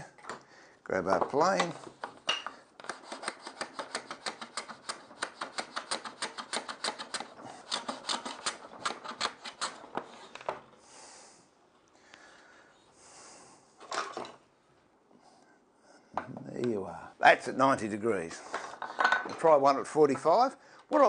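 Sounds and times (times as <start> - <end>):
hand plane cutting strokes: 2.8 - 10.4.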